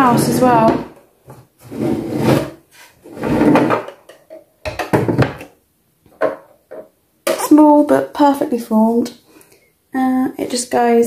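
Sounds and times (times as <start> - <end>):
plastic toy house scraping on table: 0.0 - 1.0, 1.6 - 3.9
plastic knocks and clatter: 3.4 - 7.4.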